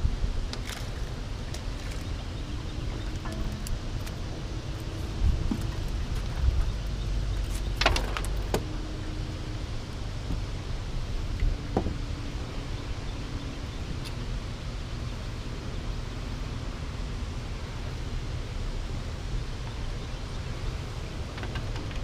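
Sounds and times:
wind on microphone: 0:00.0 - 0:07.8.

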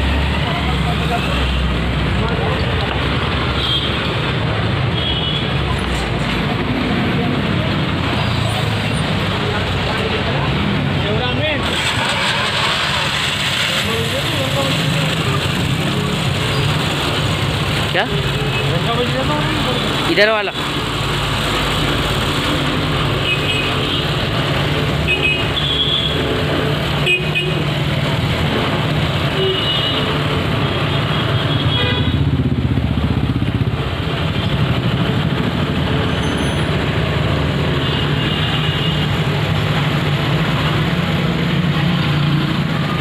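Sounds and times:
street traffic engine hum: 0:00.0 - 0:43.0
vehicle horn toots: 0:31.4 - 0:32.2.

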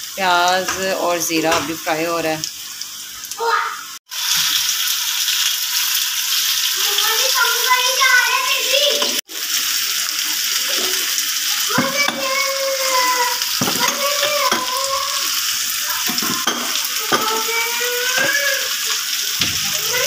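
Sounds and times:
potato slices sizzling in oil: 0:00.0 - 0:20.0
utensil knocking on pan: 0:11.7 - 0:12.3, 0:13.6 - 0:14.7, 0:16.1 - 0:17.4.

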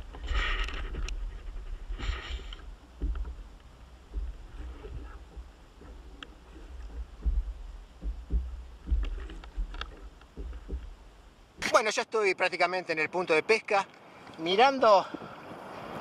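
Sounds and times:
wind rumble on microphone: 0:00.0 - 0:11.6
kayak hull slapping waves: 0:00.0 - 0:11.9.

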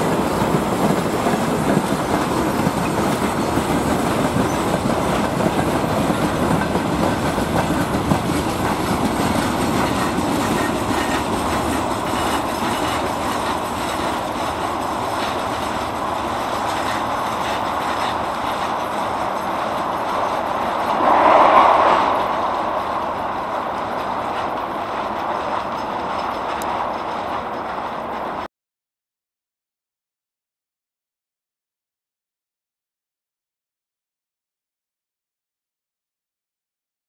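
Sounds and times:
freight train wheels clattering: 0:00.0 - 0:20.9
loud burst of noise: 0:20.8 - 0:24.4.

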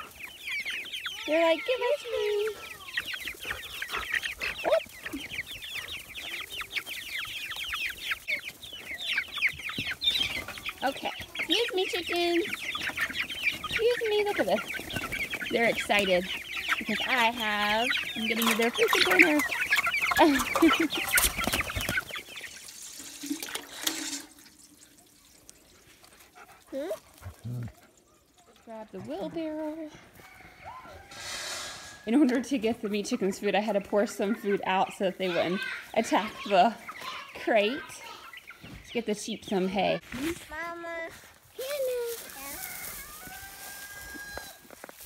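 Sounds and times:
chickens cheeping: 0:00.0 - 0:40.3, 0:41.0 - 0:45.0
hose water into metal container: 0:22.5 - 0:26.1.

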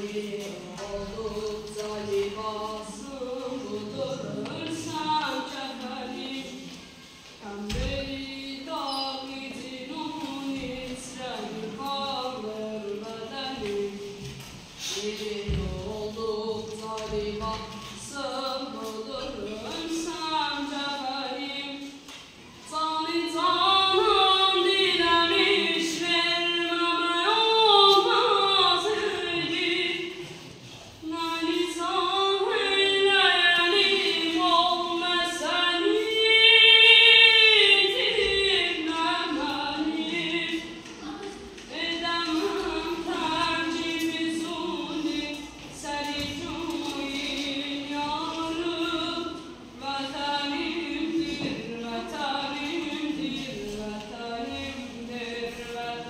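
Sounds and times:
boy singing unaccompanied: 0:22.6 - 0:30.3, 0:31.0 - 0:56.0.

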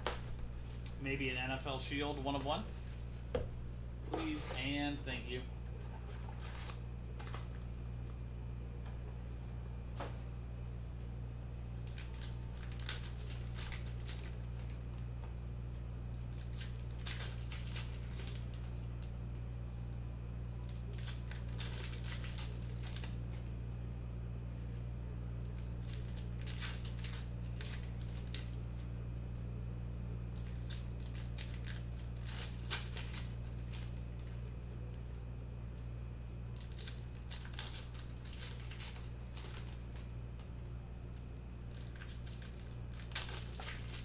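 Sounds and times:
foil wrappers crinkling and tearing: 0:00.0 - 0:03.3, 0:04.2 - 0:07.7, 0:11.7 - 0:15.1, 0:15.7 - 0:19.9, 0:20.5 - 0:23.7, 0:25.4 - 0:35.2, 0:36.4 - 0:44.0
steady low hum: 0:00.0 - 0:44.0.

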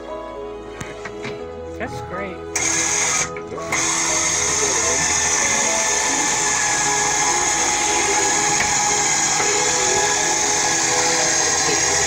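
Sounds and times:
chair lift motor whining: 0:02.6 - 0:12.0.

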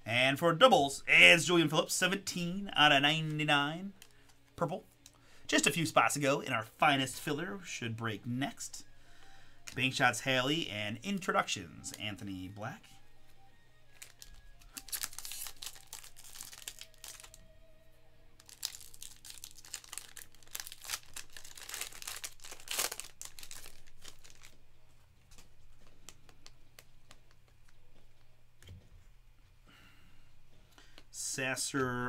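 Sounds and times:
plastic wrapper crinkling and tearing: 0:13.9 - 0:17.5, 0:18.4 - 0:28.0.

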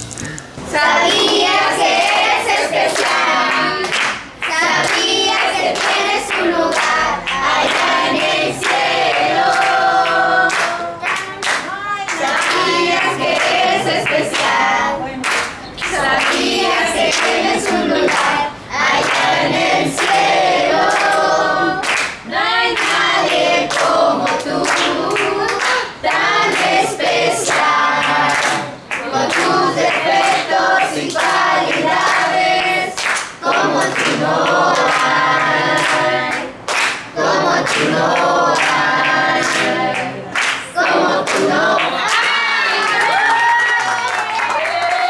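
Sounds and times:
group singing birthday song: 0:00.0 - 0:43.6
rhythmic hand clapping: 0:00.8 - 0:45.0.

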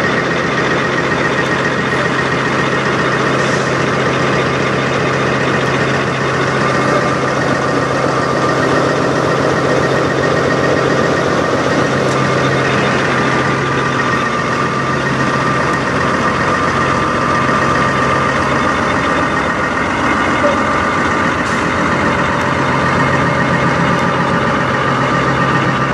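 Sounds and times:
diesel truck engine idling: 0:00.0 - 0:25.9.

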